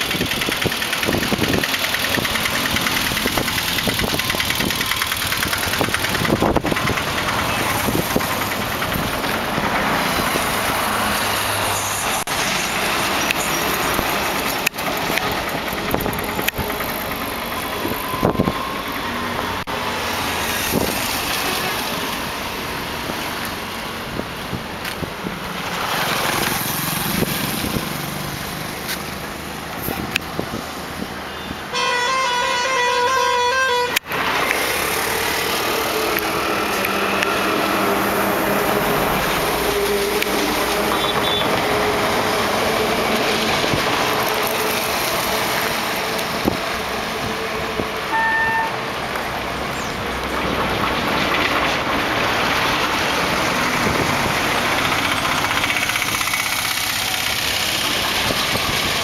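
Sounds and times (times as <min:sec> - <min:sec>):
road traffic passing: 0:00.0 - 0:59.0
vehicle horn pulsing: 0:31.3 - 0:34.1, 0:40.8 - 0:41.7, 0:48.1 - 0:48.8
short horn toots: 0:31.7 - 0:34.0, 0:48.1 - 0:48.8.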